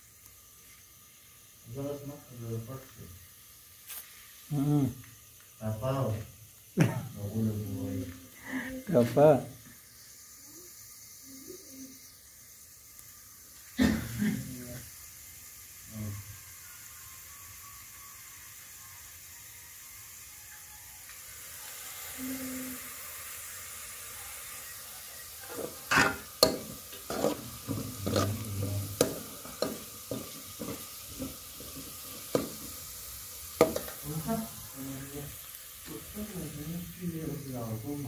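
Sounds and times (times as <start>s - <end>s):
food sizzling in a pot: 0.0s - 38.0s
metal spoon scraping a pot: 25.5s - 32.5s.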